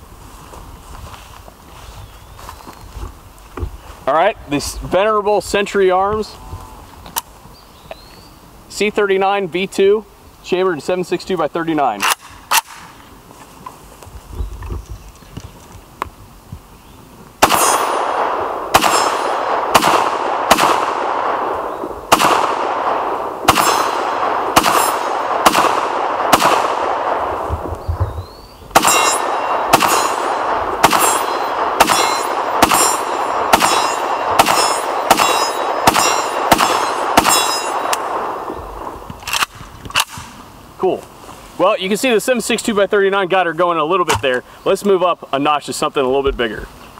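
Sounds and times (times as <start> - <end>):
bullets clanging on steel: 17.4 - 18.2, 18.8 - 19.5, 23.5 - 24.0, 28.8 - 38.2
rifle shots: 17.4 - 40.4.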